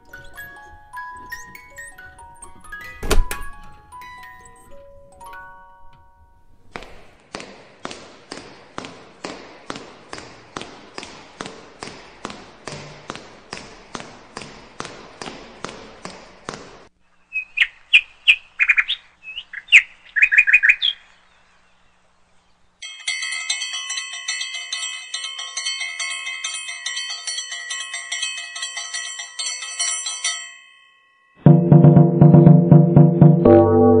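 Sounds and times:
parrot chicks chirping: 0.0s - 2.9s, 17.1s - 21.2s.

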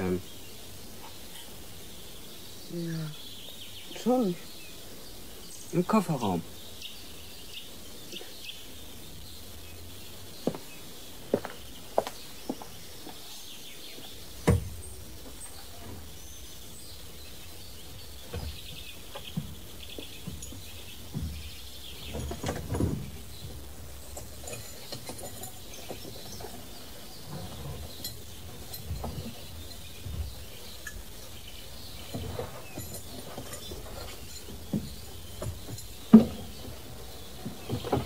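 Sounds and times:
birds chirping: 0.0s - 38.0s
car boot knocks and rattles: 14.4s - 15.0s, 18.2s - 23.5s, 32.0s - 38.0s.

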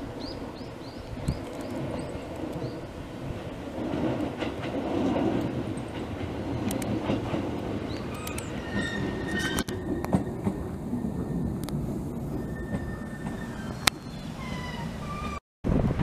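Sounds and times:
train wheels rumbling on rail: 0.0s - 16.0s
clicks at rail joints: 3.8s - 10.7s
short high squeals: 8.1s - 9.9s.

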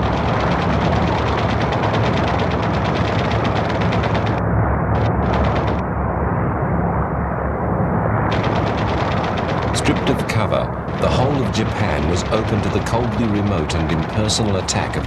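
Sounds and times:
rapid machine-gun fire: 0.0s - 4.4s, 5.0s - 5.8s, 8.3s - 15.0s
aircraft engine drone: 0.0s - 15.0s.

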